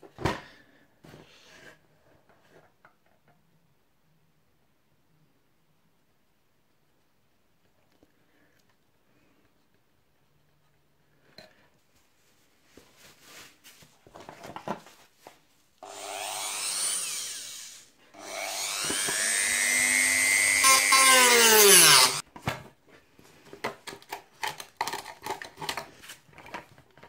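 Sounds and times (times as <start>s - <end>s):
rotary tool cutting plastic: 15.8s - 22.2s.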